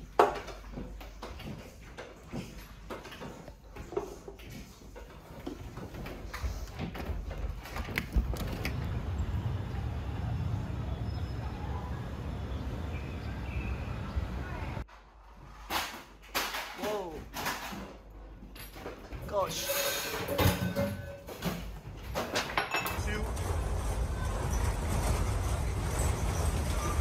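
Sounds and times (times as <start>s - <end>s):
window frame creaking and clicking: 7.0s - 8.9s.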